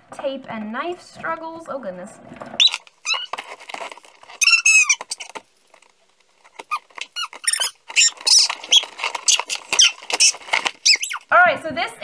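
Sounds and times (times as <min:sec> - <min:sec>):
tape squealing and crackling: 0:02.6 - 0:11.4
knife cutting packing tape: 0:06.6 - 0:11.2.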